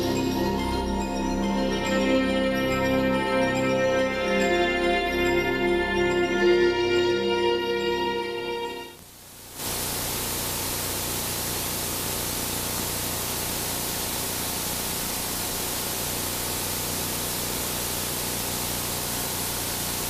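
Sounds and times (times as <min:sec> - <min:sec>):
static hiss: 0:07.9 - 0:20.0.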